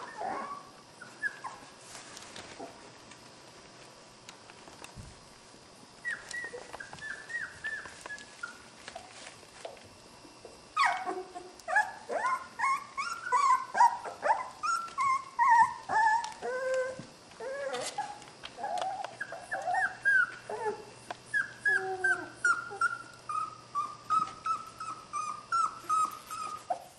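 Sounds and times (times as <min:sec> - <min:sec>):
puppies yipping and whining: 0:00.0 - 0:01.8, 0:06.0 - 0:09.3, 0:10.7 - 0:26.9.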